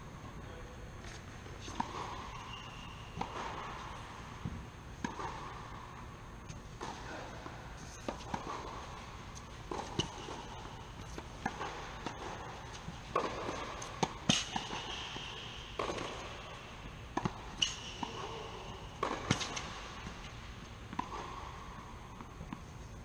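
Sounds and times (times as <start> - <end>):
tennis ball hits: 1.0 - 6.1, 6.8 - 22.7
shoe squeaks: 1.6 - 3.2.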